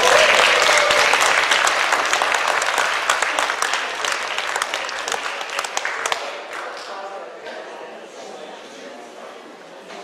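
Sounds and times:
audience applause: 0.0 - 7.0.

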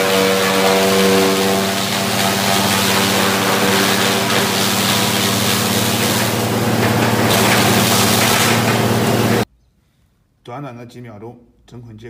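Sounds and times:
electric motor hum: 0.0 - 9.4
straw rushing out of chopper: 0.0 - 9.4.

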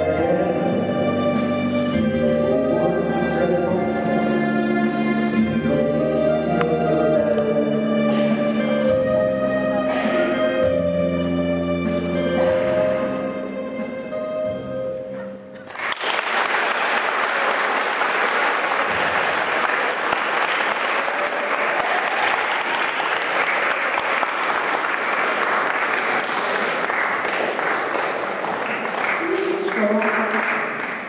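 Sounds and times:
music: 0.0 - 16.5
audience applauding: 15.6 - 31.0.

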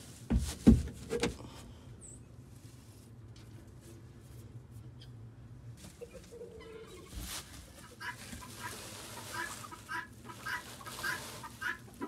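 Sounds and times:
chickens clucking: 5.8 - 12.0.

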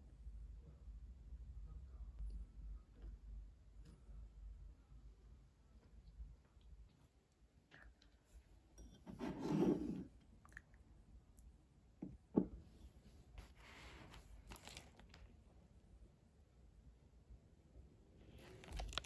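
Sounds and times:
rustling on wooden tray: 9.1 - 10.1.

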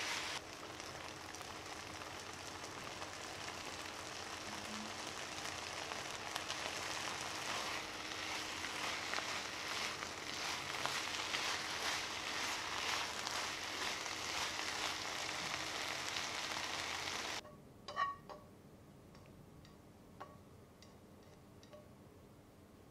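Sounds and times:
food sizzling in frying pan: 0.0 - 17.4
chopsticks clicking on pan: 19.1 - 21.8.

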